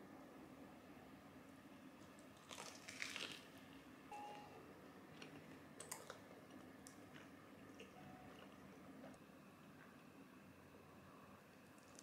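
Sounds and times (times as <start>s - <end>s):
chewing sandwich crunchily: 2.2s - 3.5s, 5.1s - 9.2s
brief faint tone: 4.1s - 4.7s, 8.0s - 8.4s.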